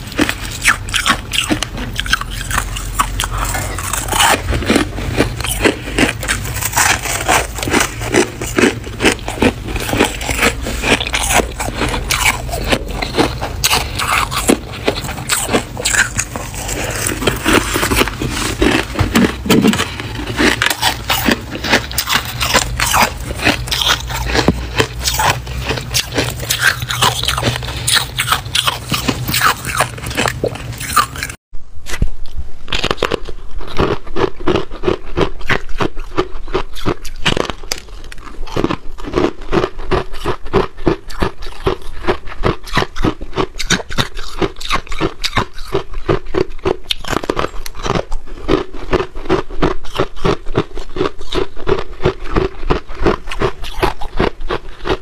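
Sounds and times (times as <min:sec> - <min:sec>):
frost crunching and scraping: 0:00.0 - 0:32.0
steady low hum: 0:00.0 - 0:33.7
frost being chewed with crunches: 0:00.0 - 0:55.0.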